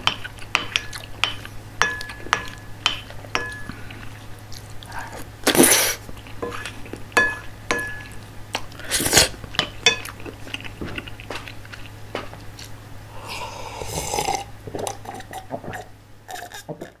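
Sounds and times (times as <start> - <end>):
mouth and chewing sounds: 3.0 - 7.2, 8.0 - 12.8, 13.7 - 17.0.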